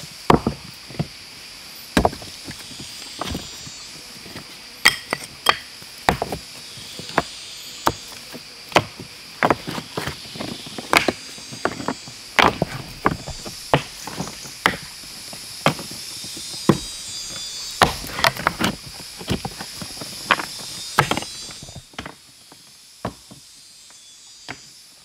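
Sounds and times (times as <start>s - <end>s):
sharp chopping strikes: 12.4s - 14.9s, 17.8s - 18.7s.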